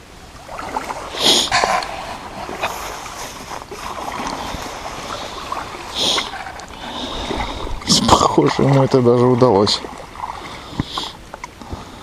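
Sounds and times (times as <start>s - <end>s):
water sloshing and splashing: 0.0s - 12.0s.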